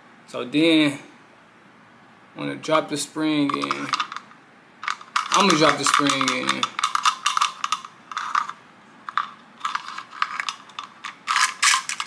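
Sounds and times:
plastic magazine clicks and rattles: 3.6s - 4.2s, 4.8s - 12.0s.

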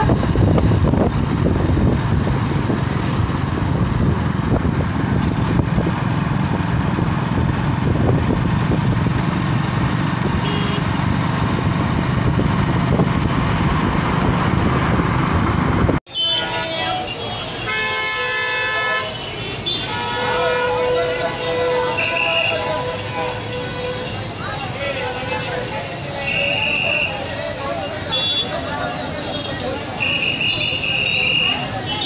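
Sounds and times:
motorcycle engine running: 0.0s - 16.0s
road noise rush: 0.0s - 32.0s.

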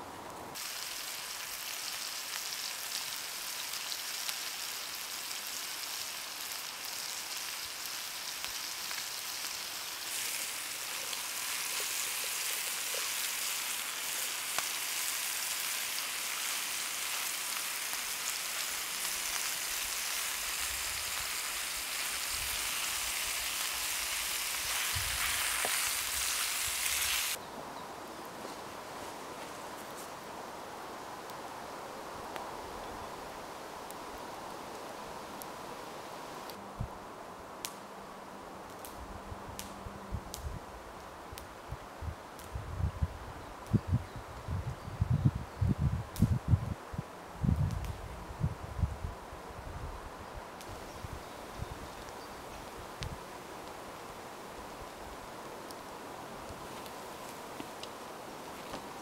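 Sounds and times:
peppers sizzling in frying pan: 0.6s - 27.4s.

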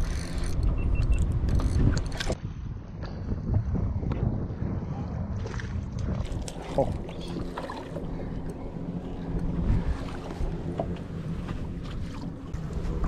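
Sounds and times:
low hum: 0.0s - 13.0s
wind on microphone: 0.0s - 13.0s
water splashes: 5.3s - 12.6s.

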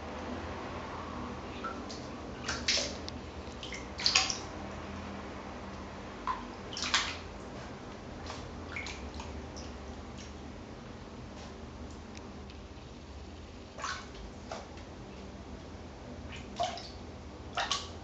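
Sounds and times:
water splashing in plastic basin: 1.6s - 4.6s, 6.2s - 10.4s, 13.8s - 14.8s, 16.3s - 18.0s.

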